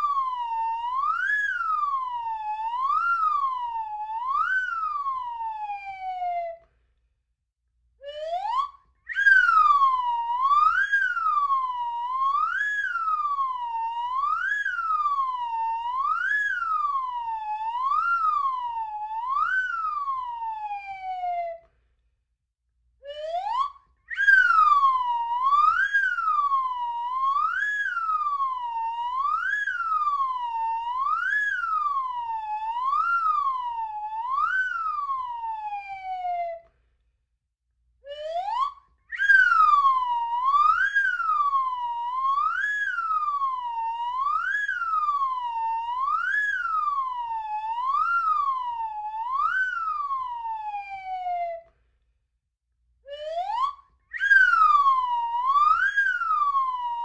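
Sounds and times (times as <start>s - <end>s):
slide whistle swooping: 9.1s - 9.8s, 24.1s - 26.5s, 38.1s - 41.5s, 53.1s - 56.9s.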